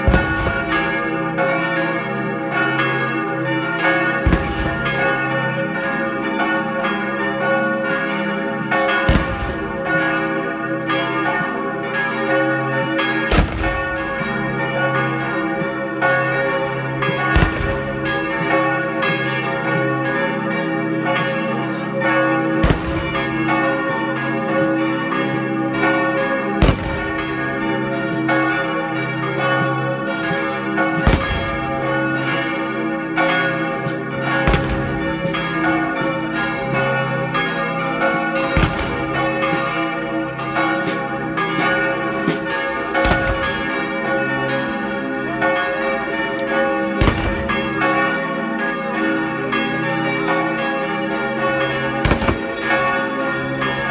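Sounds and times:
church bells pealing: 0:00.0 - 0:53.9
heavy bell strike: 0:22.4 - 0:23.8, 0:33.1 - 0:37.4, 0:38.0 - 0:50.7, 0:51.3 - 0:53.9.

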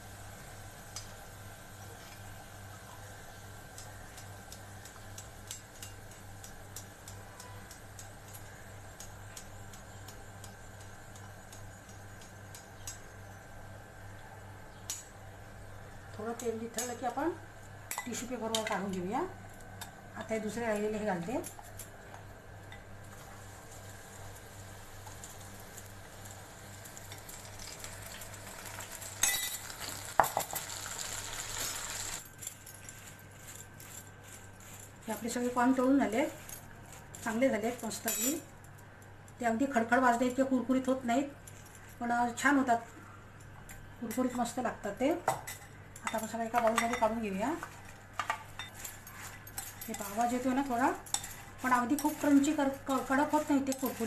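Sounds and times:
frying oil crackling and popping: 0:00.0 - 0:13.2, 0:21.6 - 0:32.3.

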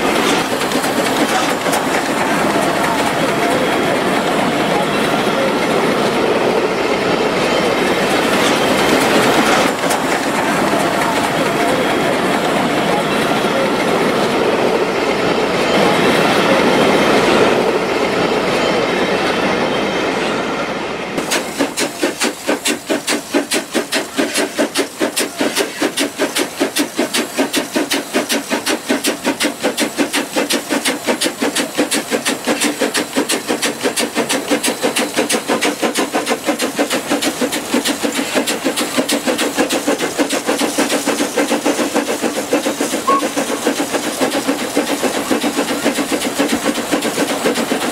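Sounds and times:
steam hissing: 0:00.0 - 0:14.1, 0:21.2 - 0:47.9
locomotive exhaust chuffs: 0:21.2 - 0:47.9.

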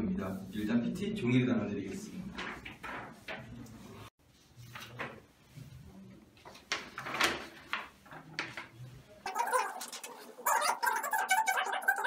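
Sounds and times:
paper rustling and crinkling: 0:04.4 - 0:05.7, 0:06.4 - 0:08.8.

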